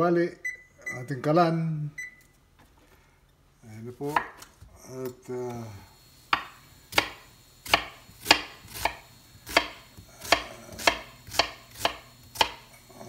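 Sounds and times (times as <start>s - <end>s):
knife chopping on wooden board: 4.1s - 4.4s, 6.3s - 12.7s.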